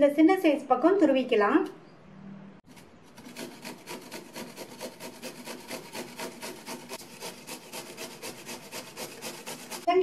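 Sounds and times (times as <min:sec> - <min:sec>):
radish rasping on grater: 0:02.7 - 0:10.0.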